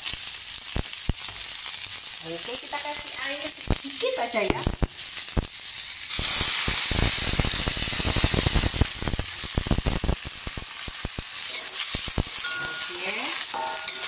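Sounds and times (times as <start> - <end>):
vegetables sizzling in a wok: 0.0 - 14.0
metal spatula scraping a wok: 11.4 - 14.0.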